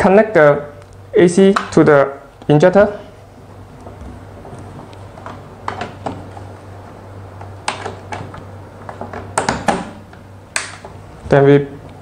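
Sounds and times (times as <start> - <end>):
plugs clicking into sockets: 10.6 - 10.9.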